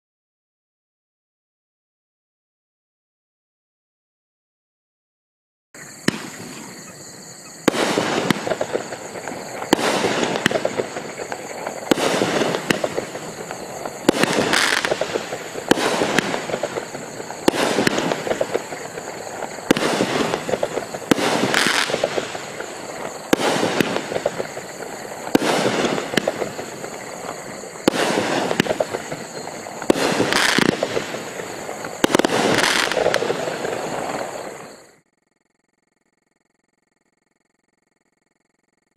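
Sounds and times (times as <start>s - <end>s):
fireworks bursts: 5.8s - 7.0s, 7.6s - 35.0s
fireworks crackle: 7.6s - 35.0s.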